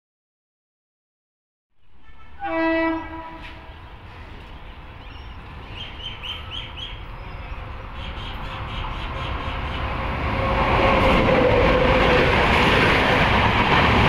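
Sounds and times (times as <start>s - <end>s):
train rumbling: 1.8s - 14.0s
locomotive horn blast: 1.9s - 3.8s.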